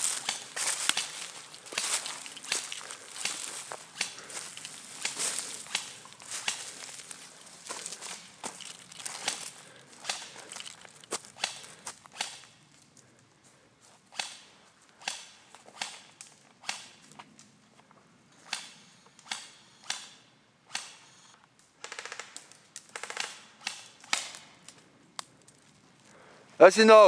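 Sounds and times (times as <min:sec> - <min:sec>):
footsteps crunching on dry leaves: 0:00.0 - 0:12.1.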